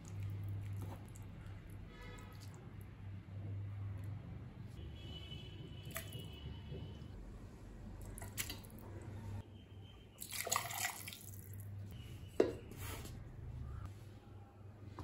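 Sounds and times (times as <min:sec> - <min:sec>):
liquid pouring and splashing: 0:10.2 - 0:11.7.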